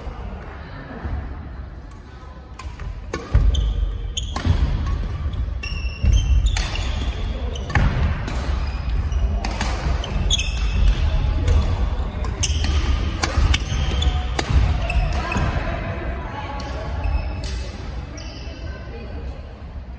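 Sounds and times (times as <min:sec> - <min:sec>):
rackets striking shuttlecock: 0:02.5 - 0:15.5
shoes squeaking on floor: 0:05.2 - 0:07.8, 0:10.0 - 0:10.8.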